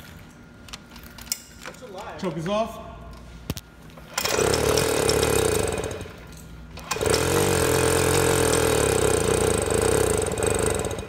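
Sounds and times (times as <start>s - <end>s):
moped engine running: 4.1s - 6.2s, 6.8s - 11.0s.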